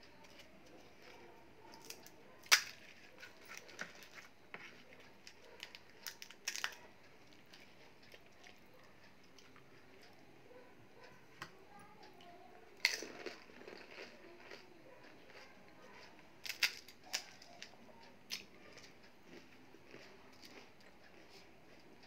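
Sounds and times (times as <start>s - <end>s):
chewing noises: 0.1s - 11.3s, 12.0s - 22.0s
crisp shells crackling and crunching: 0.3s - 4.4s, 5.2s - 8.1s, 12.8s - 14.7s, 15.3s - 17.7s.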